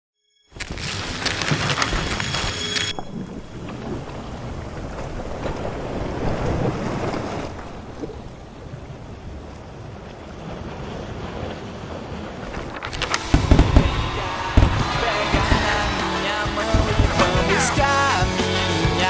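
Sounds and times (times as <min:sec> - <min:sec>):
surf washing onto beach: 0:10.1 - 0:19.0
heavy low thumps and crackle: 0:12.4 - 0:18.1.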